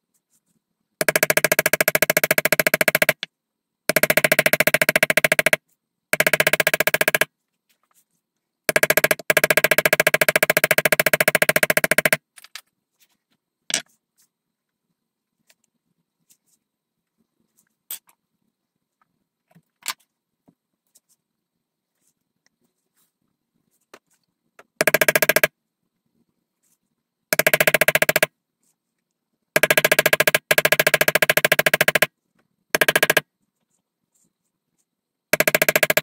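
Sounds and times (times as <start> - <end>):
mallet tapping leather stamp: 32.8 - 33.2.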